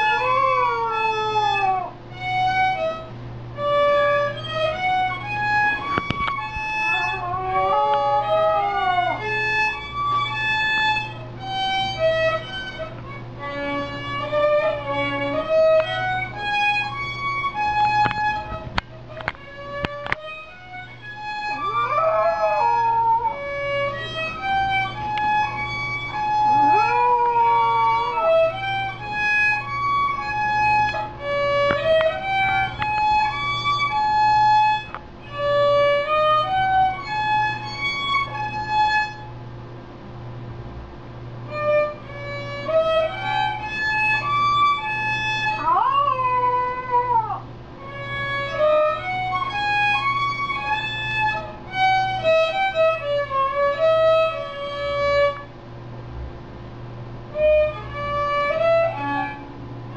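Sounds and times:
puppy howling: 0:00.0 - 0:02.8, 0:03.7 - 0:10.9, 0:12.3 - 0:16.8, 0:20.3 - 0:31.0, 0:41.5 - 0:51.5, 0:57.7 - 0:59.5
violin playing slow melody: 0:00.0 - 0:39.3, 0:41.5 - 0:45.6, 0:47.8 - 0:55.5, 0:57.3 - 0:59.6.

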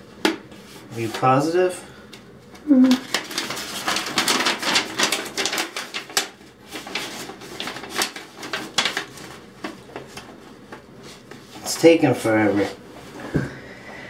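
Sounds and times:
paper and wrapper crinkling: 0:02.8 - 0:12.7.

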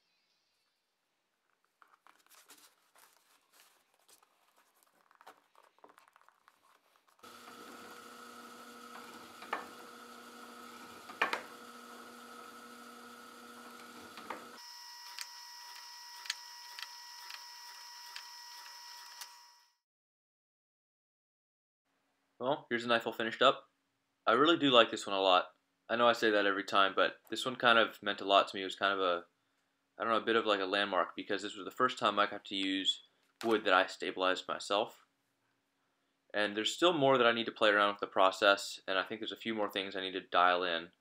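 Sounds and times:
handling noises: 0:01.4 - 0:08.3
drill press humming: 0:07.2 - 0:19.4.

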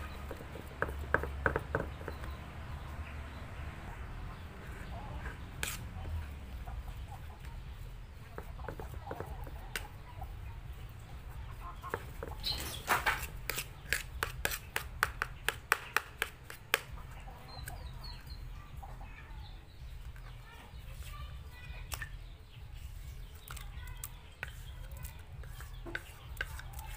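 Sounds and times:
spoon scraping ceramic bowl: 0:04.7 - 0:06.2, 0:13.1 - 0:14.9, 0:23.5 - 0:26.9.

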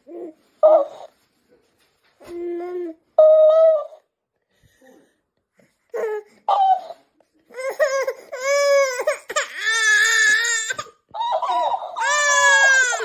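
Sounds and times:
baby crying: 0:05.9 - 0:13.0.

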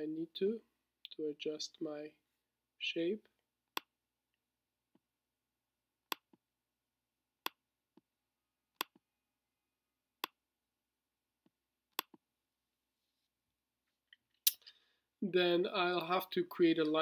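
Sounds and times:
mouse clicks: 0:06.1 - 0:06.3.

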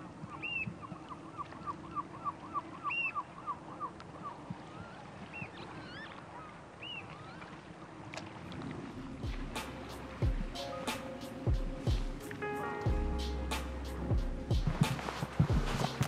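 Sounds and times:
higher single bird calls: 0:00.3 - 0:07.5.

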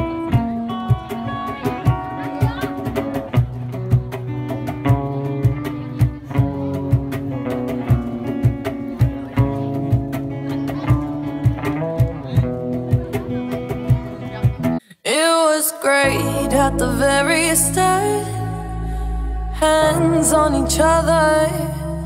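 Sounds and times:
acoustic guitars strumming: 0:00.0 - 0:14.8
cajon beating rhythm: 0:00.0 - 0:14.8
music: 0:00.0 - 0:14.9, 0:15.9 - 0:22.0.

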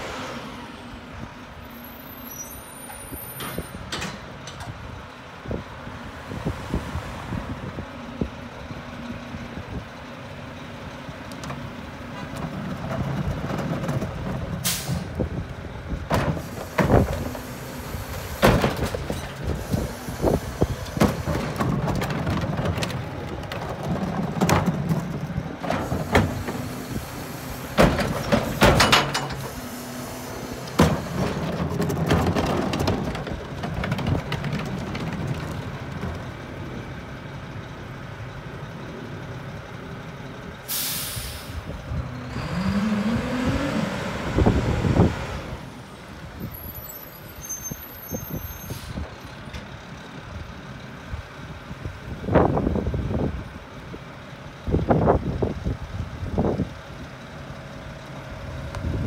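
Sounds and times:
carts clanking and banging: 0:02.8 - 0:05.0, 0:11.2 - 0:37.6
diesel truck engine idling: 0:07.4 - 0:59.0
air hiss: 0:40.7 - 0:41.7.

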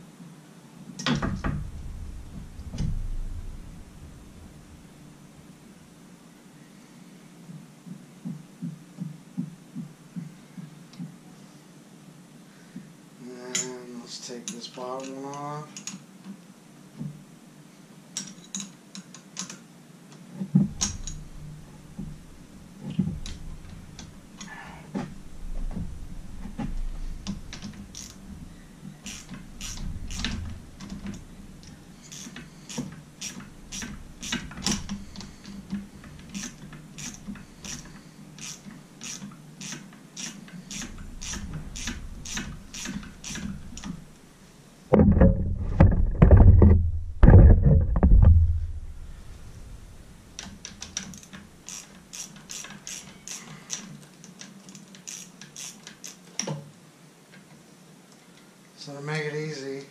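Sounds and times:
low knocking and rattling: 0:01.0 - 0:06.0, 0:20.5 - 0:38.1, 0:40.7 - 0:44.3, 0:44.9 - 0:51.0
ratchet wrench clicking: 0:27.5 - 0:28.2, 0:29.0 - 0:30.4, 0:32.0 - 0:35.4, 0:36.4 - 0:43.9, 0:50.9 - 0:53.9, 0:55.0 - 0:56.2.

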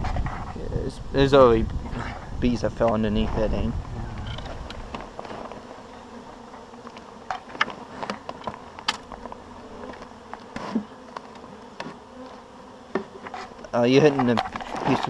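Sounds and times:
bee swarm humming: 0:00.0 - 0:15.0
single bee buzzing: 0:03.2 - 0:15.0.

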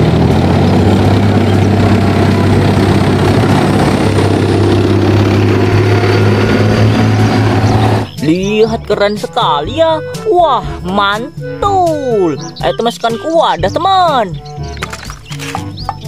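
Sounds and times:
tanks rumbling past: 0:00.0 - 0:08.6.

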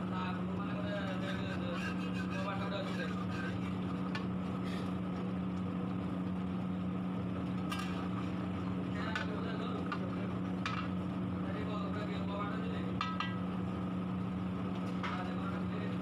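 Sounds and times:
low mechanical hum: 0:00.0 - 0:16.0
wooden spatula knocking a pot: 0:13.0 - 0:13.4.

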